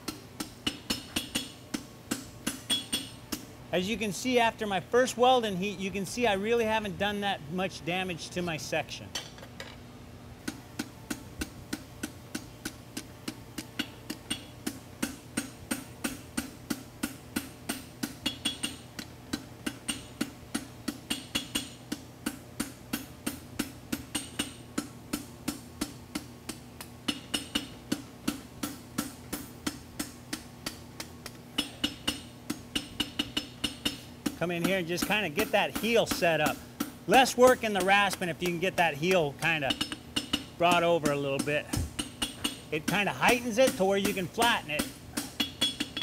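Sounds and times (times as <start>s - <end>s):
hammer striking metal on anvil: 0.0s - 3.4s, 13.8s - 18.8s, 19.7s - 30.8s, 31.6s - 46.0s.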